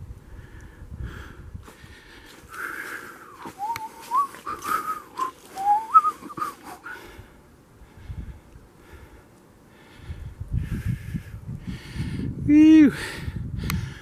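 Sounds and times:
person whistling: 0:03.4 - 0:06.9.

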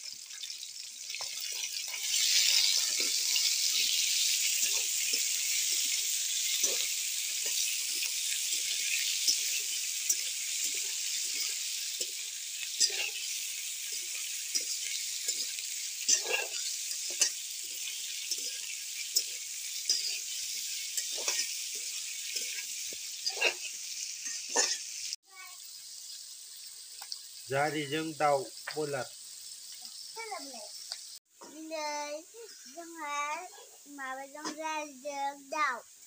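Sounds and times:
chicken sizzling in oil: 0:00.0 - 0:36.0
spatula scraping wok: 0:01.1 - 0:25.1.

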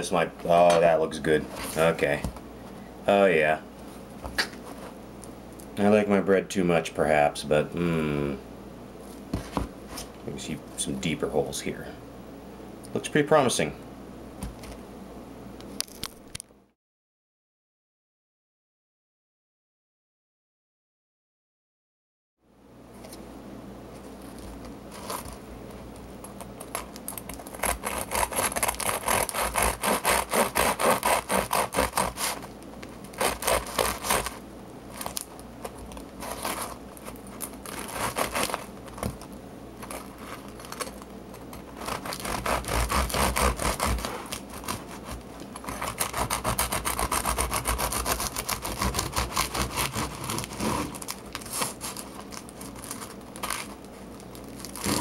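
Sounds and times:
knife sawing through bread crust: 0:27.5 - 0:32.5, 0:33.1 - 0:34.4, 0:37.7 - 0:38.6, 0:41.8 - 0:52.0, 0:54.8 - 0:55.0.

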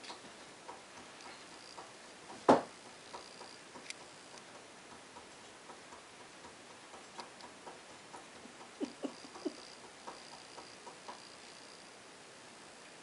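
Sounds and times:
faint regular ticking: 0:00.0 - 0:12.9.

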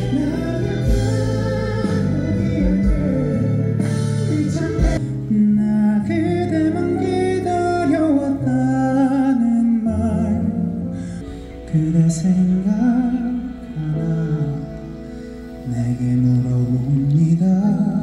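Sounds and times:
live band playing: 0:00.0 - 0:18.0
man singing long wavering notes: 0:11.6 - 0:18.0.

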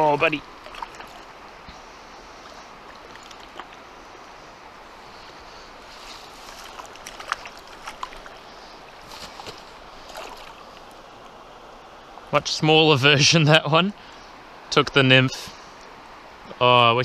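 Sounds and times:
shallow river flowing: 0:00.0 - 0:17.0
fish splashing at the surface: 0:00.6 - 0:01.3, 0:06.2 - 0:10.9.

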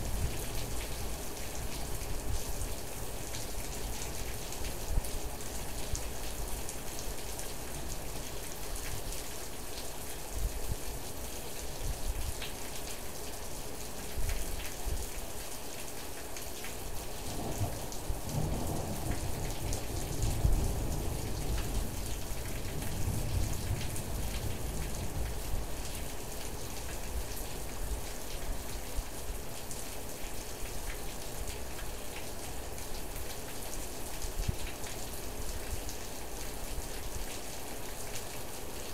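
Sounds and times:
rain falling: 0:00.0 - 0:38.9
low rumble of thunder: 0:17.2 - 0:26.1.

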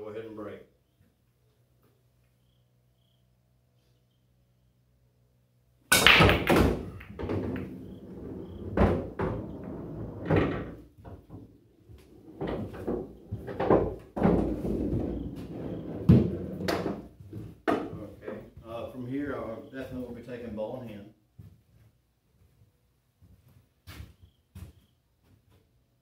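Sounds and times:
cue ball cracking into rack: 0:05.9 - 0:08.0
pool balls clicking: 0:05.9 - 0:18.0.

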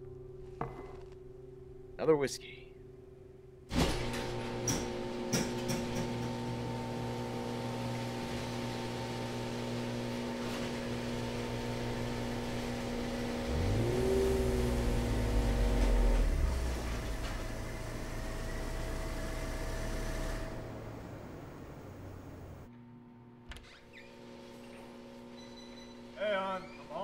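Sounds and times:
garage door opener clicks: 0:03.7 - 0:09.2
car engine: 0:03.7 - 0:23.6
garage door opener humming: 0:03.7 - 0:27.0.

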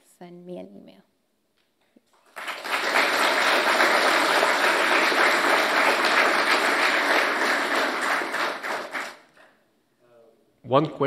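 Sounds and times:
audience applauding: 0:02.1 - 0:09.4.

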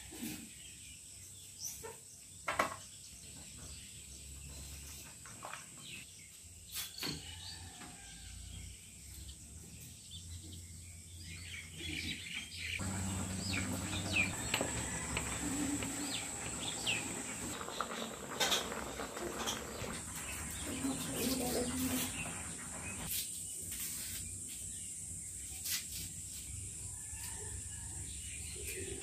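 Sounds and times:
small birds chirping: 0:08.6 - 0:27.4.

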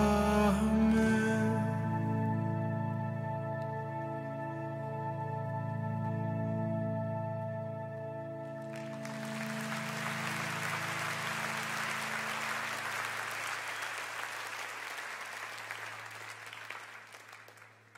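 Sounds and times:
soft keyboard chord: 0:00.0 - 0:13.1
audience applause: 0:08.6 - 0:17.9.

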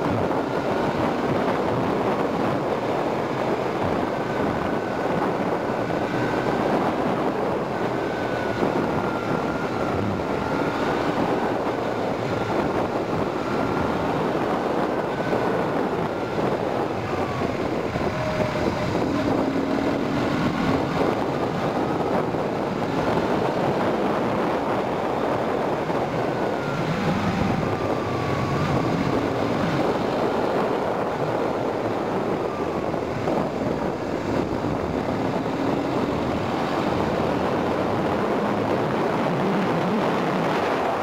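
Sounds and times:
wind rush over microphone: 0:00.0 - 0:41.0
motorcycle engine: 0:03.7 - 0:23.7.

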